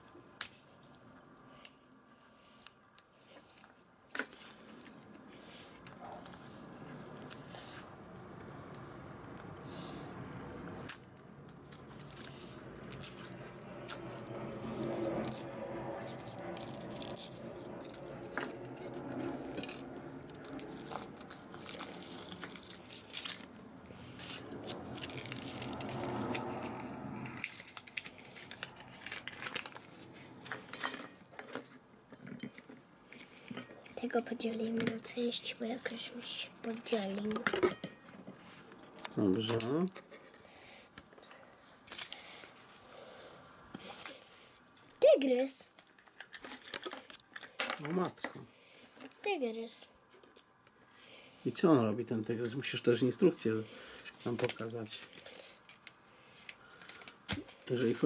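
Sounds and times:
foil wrapper crinkling and tearing: 2.5s - 31.6s, 45.2s - 48.3s, 53.8s - 58.0s.

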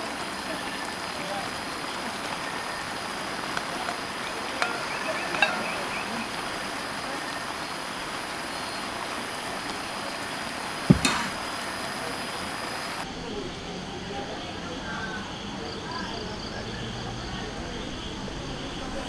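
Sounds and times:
food sizzling in a pan: 0.8s - 9.1s
sharp knock: 10.9s - 11.4s.

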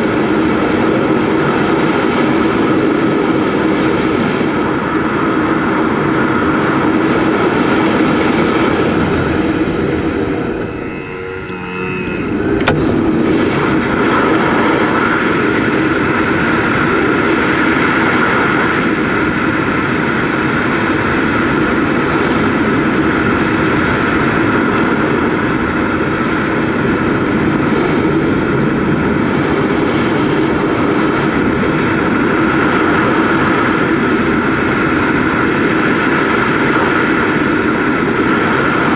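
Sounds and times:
rush of airflow: 1.4s - 38.9s
steady drone: 1.5s - 27.3s
sharp click: 12.6s - 12.9s.

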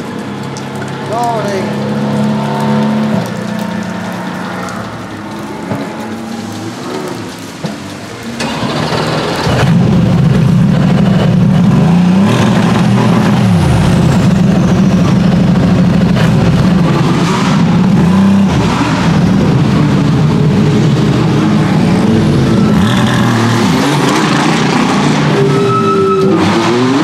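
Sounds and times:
car engine revving: 8.1s - 27.0s.

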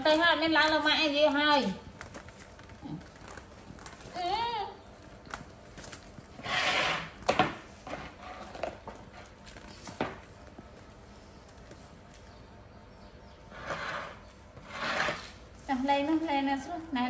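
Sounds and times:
wicker basket scraping on concrete: 5.7s - 10.5s, 13.4s - 17.0s.

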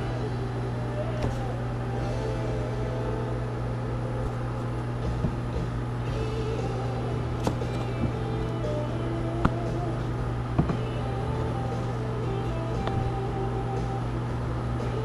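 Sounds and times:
steady low hum: 0.0s - 15.0s
knock against plastic bin: 10.6s - 10.8s.

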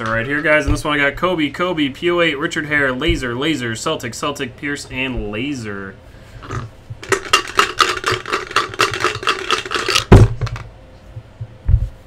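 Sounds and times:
dice rattling in a cup: 6.5s - 10.7s.

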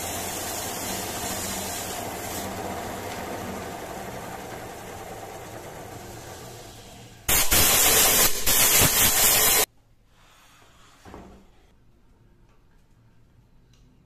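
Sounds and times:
loud steady hiss: 0.0s - 2.4s, 7.3s - 9.7s
wood lathe running: 0.0s - 7.3s.

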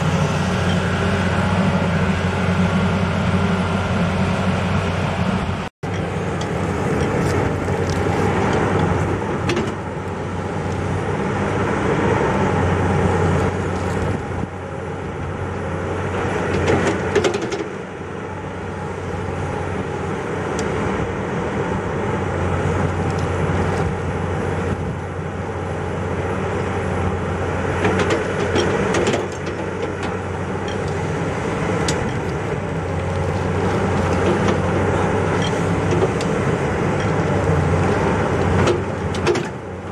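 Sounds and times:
excavator diesel engine running: 0.0s - 39.9s.

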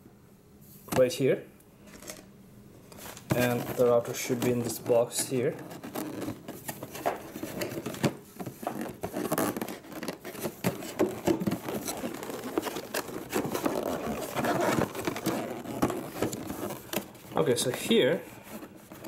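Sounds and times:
fingers scraping cardboard box: 3.4s - 17.2s.

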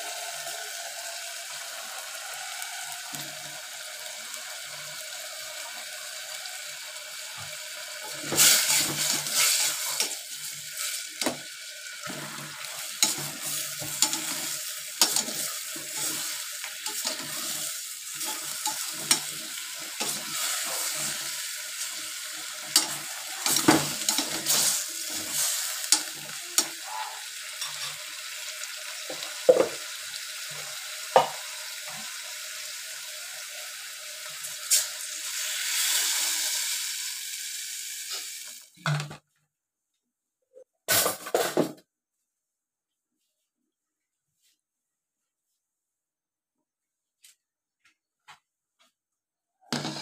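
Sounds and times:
food sizzling: 0.0s - 38.8s, 49.7s - 50.0s.

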